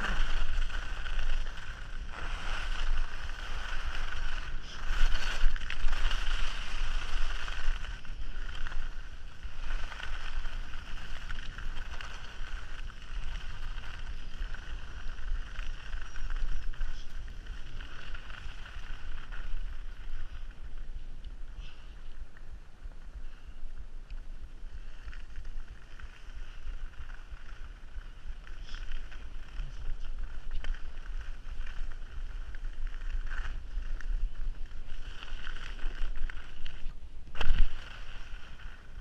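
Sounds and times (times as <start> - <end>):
skis hissing on snow: 0.0 - 15.5
wind buffeting microphone: 0.0 - 21.5.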